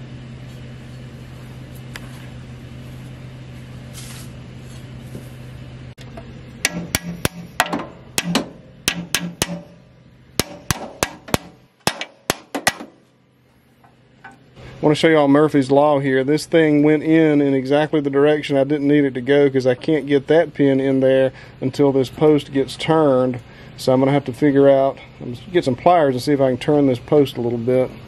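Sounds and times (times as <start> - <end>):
steady low hum: 0.0 - 28.0
metal clicks and knocks: 6.0 - 9.8, 10.4 - 13.0.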